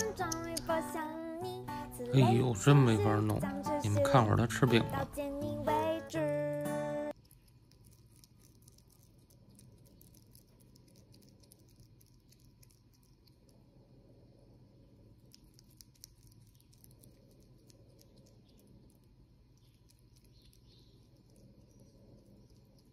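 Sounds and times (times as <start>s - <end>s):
marmoset chewing clicks: 0.0s - 0.8s, 7.2s - 13.6s, 15.2s - 22.9s.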